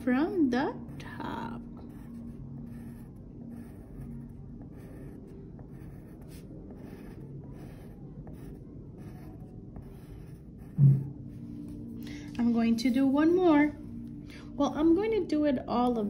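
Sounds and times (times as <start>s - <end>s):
pencil scratching on paper: 0.1s - 11.1s.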